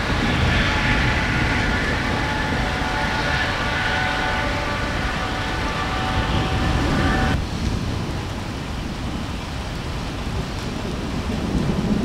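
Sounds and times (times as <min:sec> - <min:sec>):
droning held tones: 0:00.0 - 0:07.4
steady rain: 0:00.0 - 0:12.0
thunder rumbling: 0:00.0 - 0:12.0
wind: 0:00.0 - 0:12.0.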